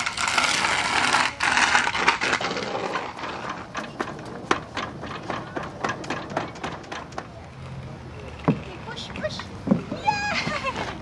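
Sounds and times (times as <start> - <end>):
footsteps on wooden slats: 8.4 - 11.0.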